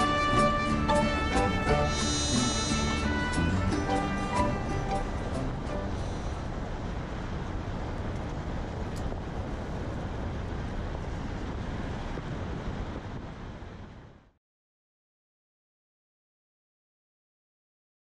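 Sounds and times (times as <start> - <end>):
music: 0.0 - 6.5
low rushing noise: 0.0 - 14.4.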